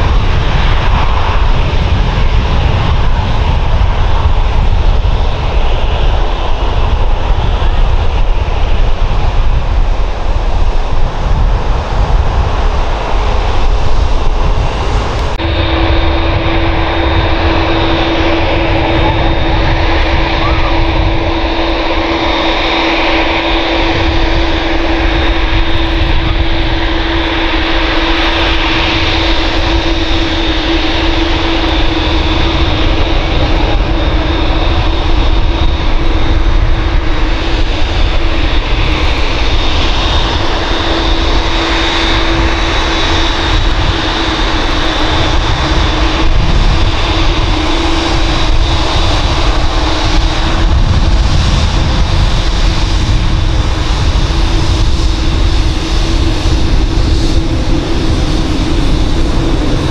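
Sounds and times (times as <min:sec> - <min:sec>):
jet engines whining while taxiing: 0:00.0 - 0:59.9.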